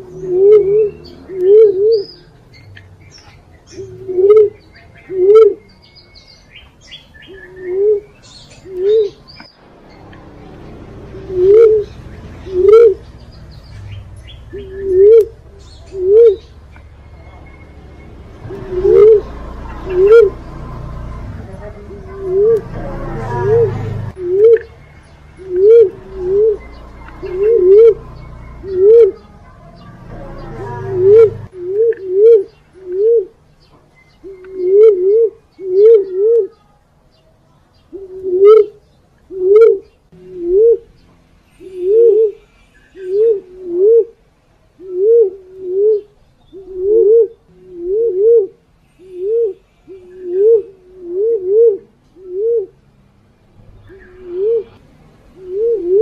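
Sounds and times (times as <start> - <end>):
dove cooing: 0.0 - 2.3, 3.7 - 5.7, 7.2 - 9.3, 11.0 - 13.4, 14.4 - 16.9, 17.5 - 24.8, 25.4 - 33.4, 34.2 - 36.6, 38.0 - 40.9, 41.6 - 44.2, 44.8 - 52.8, 53.9 - 54.8, 55.4 - 56.0
faint high bird chirps: 23.4 - 43.4.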